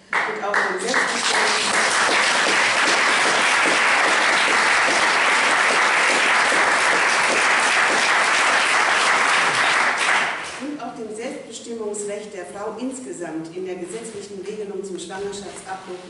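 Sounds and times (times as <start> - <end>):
audience applauding: 0.1 - 10.6.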